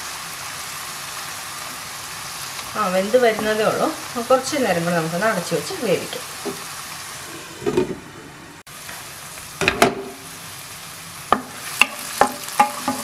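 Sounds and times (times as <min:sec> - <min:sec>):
mushrooms sizzling in a frying pan: 0:00.0 - 0:07.5, 0:08.7 - 0:13.0
spatula knocking against pan: 0:11.4 - 0:13.0.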